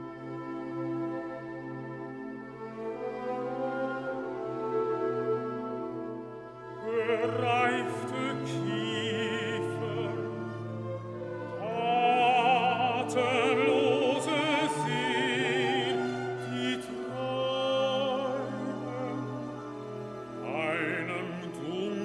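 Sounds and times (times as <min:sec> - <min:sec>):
symphony orchestra: 0:00.0 - 0:22.0
baritone singing with vibrato: 0:06.8 - 0:22.0.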